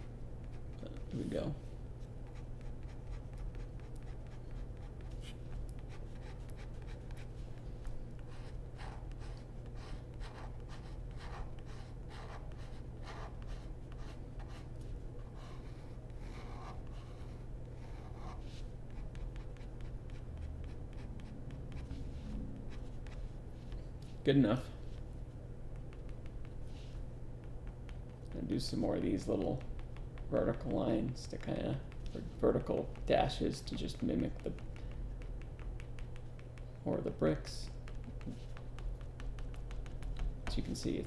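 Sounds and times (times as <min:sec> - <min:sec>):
steady low hum: 0:00.0 - 0:41.0
pen scratching on paper: 0:02.2 - 0:07.3, 0:08.2 - 0:14.6, 0:15.2 - 0:22.0.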